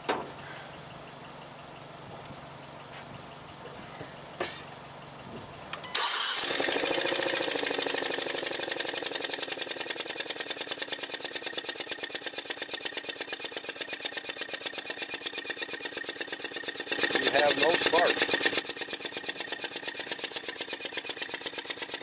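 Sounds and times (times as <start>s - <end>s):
car engine starting and idling: 0.0s - 22.0s
fast even ticking: 6.6s - 22.0s.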